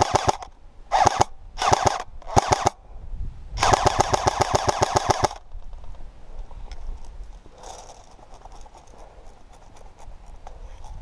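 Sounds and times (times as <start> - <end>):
airsoft rifle firing bursts: 0.0 - 2.8, 3.6 - 5.4.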